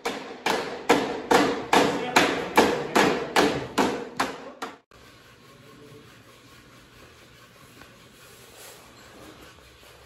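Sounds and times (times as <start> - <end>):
hammer striking wooden block: 0.0 - 4.8.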